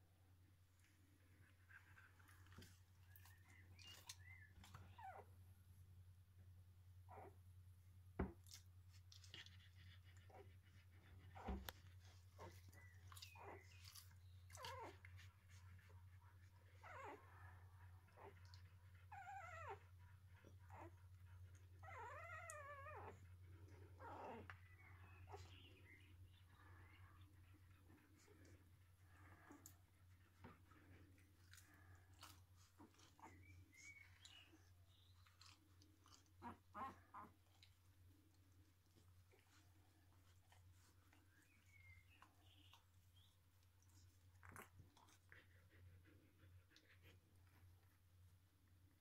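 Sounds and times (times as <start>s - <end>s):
puppies squeaking and whimpering: 1.7s - 5.3s, 9.1s - 37.9s.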